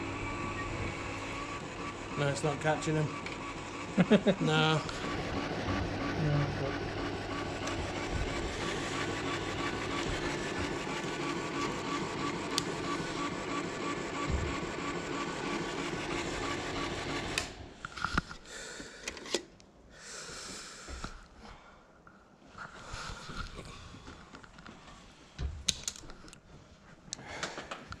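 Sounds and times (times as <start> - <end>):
projector fan humming: 0.0 - 17.8.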